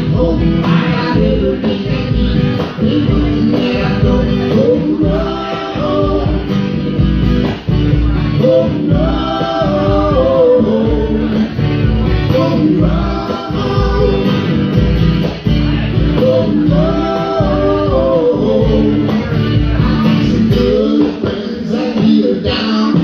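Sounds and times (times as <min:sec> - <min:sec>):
man singing: 0:00.0 - 0:07.1, 0:07.8 - 0:14.8, 0:15.5 - 0:23.0
strummed acoustic guitar: 0:00.0 - 0:23.0.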